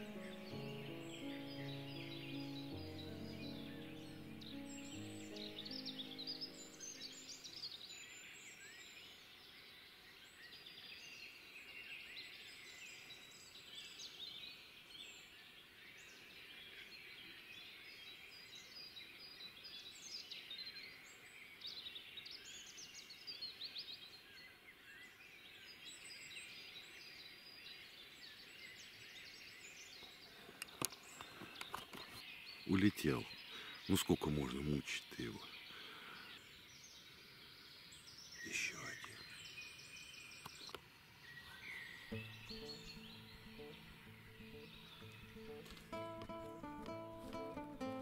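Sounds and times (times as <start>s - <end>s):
low background hiss: 0.0s - 8.6s
songbirds chirping and trilling: 0.0s - 48.0s.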